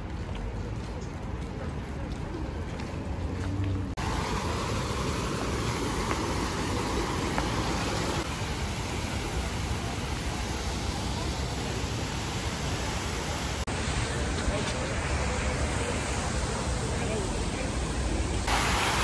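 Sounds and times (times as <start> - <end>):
steady rushing noise: 4.0 - 19.0.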